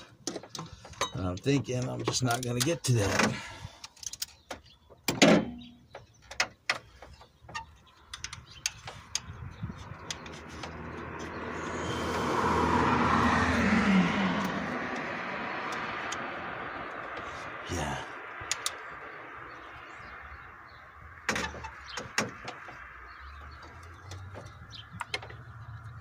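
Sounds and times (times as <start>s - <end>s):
tools tapping engine parts: 0.0s - 11.4s, 14.4s - 17.3s, 18.4s - 19.1s, 21.3s - 25.6s
vehicle passing: 9.7s - 21.3s.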